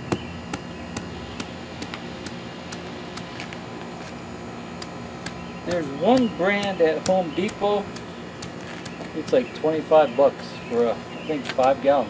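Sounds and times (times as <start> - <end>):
sledgehammer tamping asphalt: 5.2 - 9.5.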